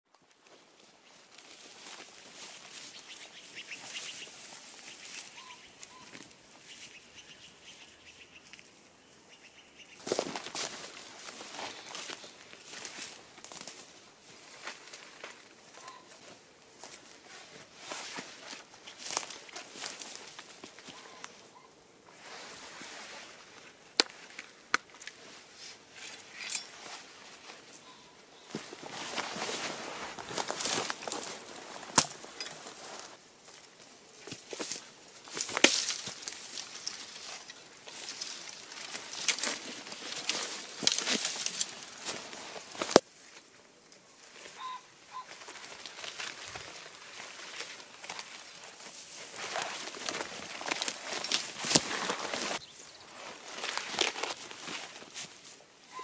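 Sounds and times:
brush crunching: 0.2 - 8.9, 9.8 - 56.0
footsteps through dry grass: 0.3 - 8.9, 9.8 - 56.0
clothing rustling: 28.5 - 33.2.

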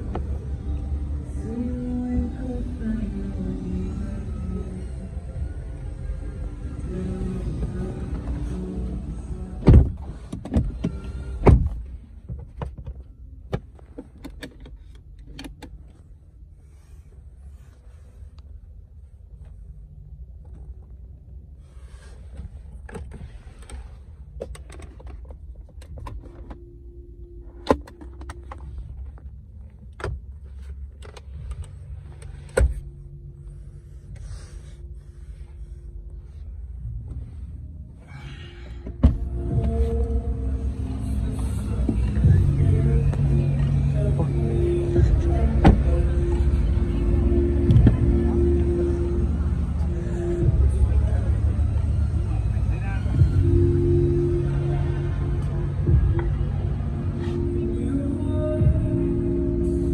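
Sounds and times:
low rumble: 28.5 - 59.9.

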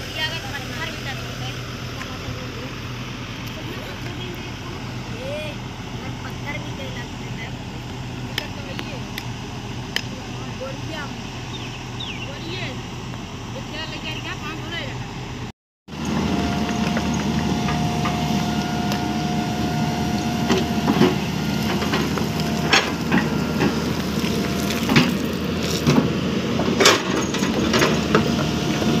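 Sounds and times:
excavator engine whining: 0.0 - 29.0
bucket scraping through rocky soil: 20.6 - 26.2
stones cracking and clattering: 21.7 - 26.0.

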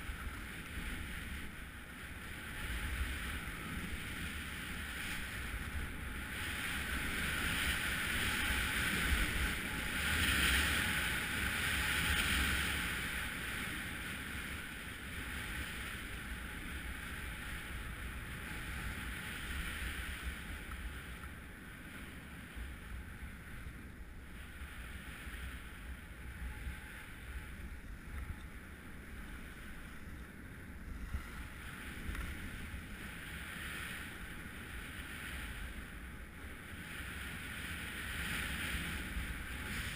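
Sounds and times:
skis scraping on snow: 0.0 - 21.2, 30.9 - 39.9.

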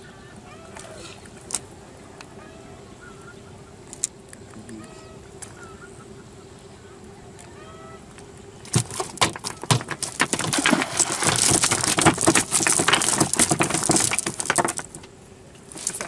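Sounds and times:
fish flapping on deck: 8.7 - 15.1, 15.7 - 16.0.

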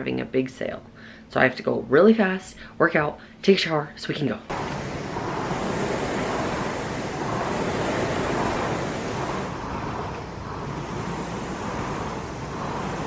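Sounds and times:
rowing machine whooshing: 4.5 - 13.0.

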